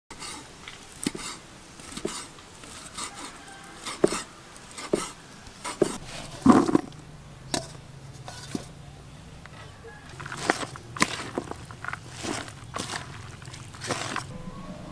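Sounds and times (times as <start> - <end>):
cleaver chopping on wooden board: 3.9 - 6.9
pieces clattering into plastic bowl: 6.4 - 6.9, 10.1 - 14.3.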